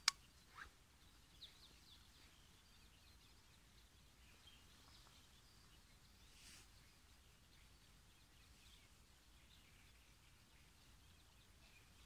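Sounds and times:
faint click: 0.0 - 0.2
faint bird chirps: 0.0 - 12.0.

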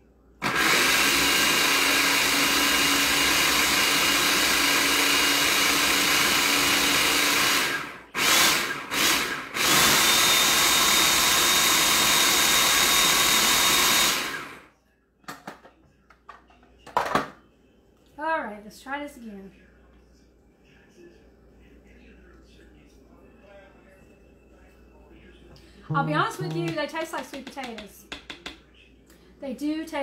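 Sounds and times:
food processor running: 0.4 - 14.7.

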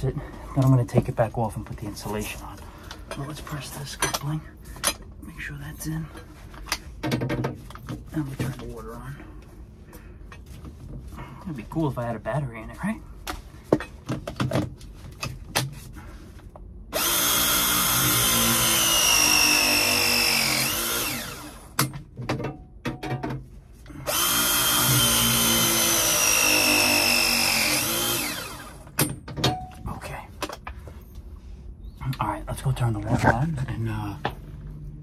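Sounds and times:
press tool motor whine: 17.0 - 21.8, 24.0 - 28.9.

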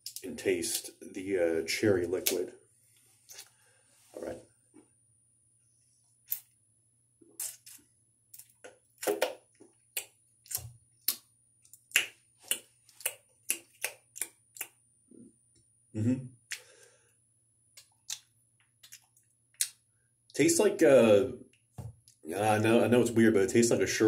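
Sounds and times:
lips smacking: 3.3 - 3.6
throaty gulp: 16.0 - 16.4.

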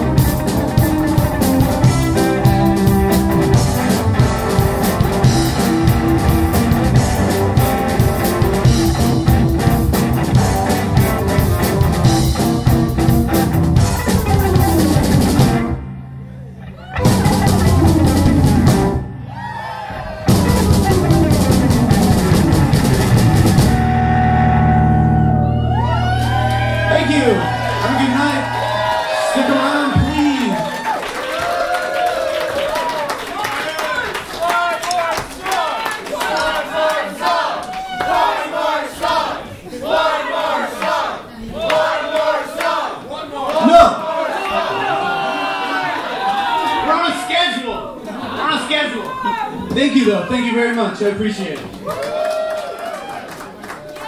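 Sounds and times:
rock band playing: 0.0 - 32.2.

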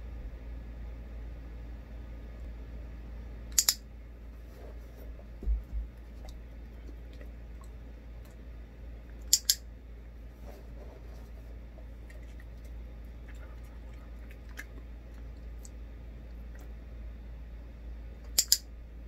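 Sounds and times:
clicker double clicks: 3.5 - 3.8, 9.3 - 9.6, 18.3 - 18.6
dull low thumps: 5.2 - 6.3.

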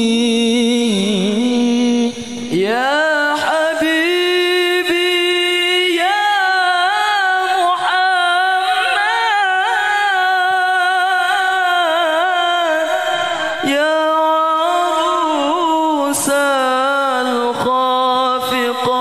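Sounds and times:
man singing solo: 0.0 - 19.0.

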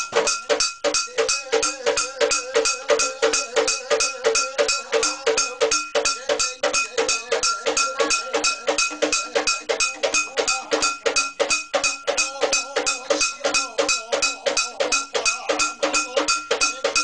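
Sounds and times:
metal percussion beat: 0.0 - 17.0.

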